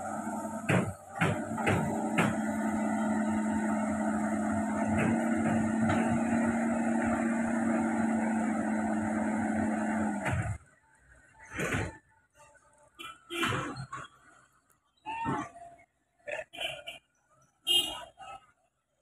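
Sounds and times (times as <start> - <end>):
excavator engine droning: 0.0 - 12.1
knocks: 0.6 - 2.5.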